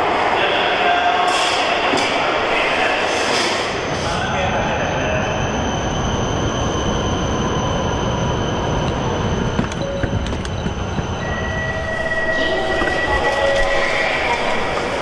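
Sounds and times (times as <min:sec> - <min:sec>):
train rumble with high whine: 0:00.0 - 0:15.0
steady high tone: 0:09.7 - 0:15.0.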